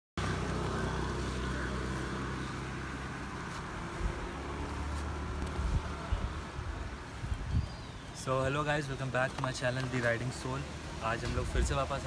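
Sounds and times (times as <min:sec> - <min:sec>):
low engine hum: 0:00.2 - 0:07.6.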